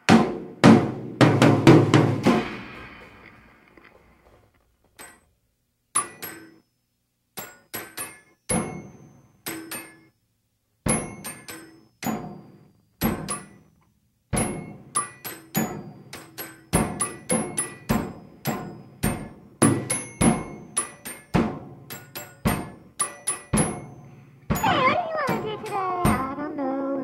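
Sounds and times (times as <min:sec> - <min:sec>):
hard objects struck rhythmically: 0:07.4 - 0:10.1, 0:10.8 - 0:13.7, 0:14.3 - 0:26.5.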